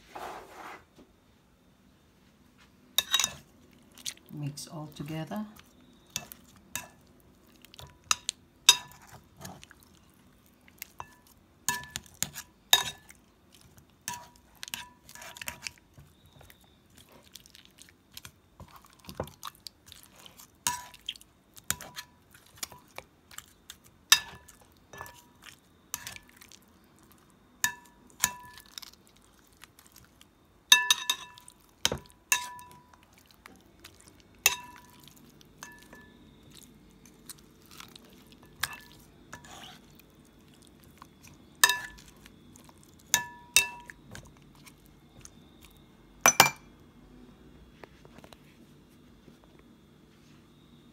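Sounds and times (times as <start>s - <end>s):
meat clinking against glass bowl: 3.0s - 3.4s, 5.0s - 9.7s, 10.8s - 16.6s, 20.6s - 26.6s, 27.6s - 29.0s, 30.7s - 39.7s, 40.9s - 44.3s, 45.2s - 46.7s
wet squishing of meat: 16.4s - 23.9s, 28.5s - 30.3s, 36.5s - 38.9s.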